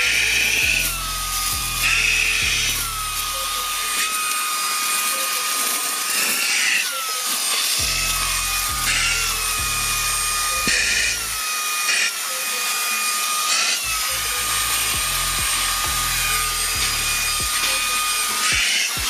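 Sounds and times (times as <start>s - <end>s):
handheld vacuum motor whine: 0.0s - 19.0s.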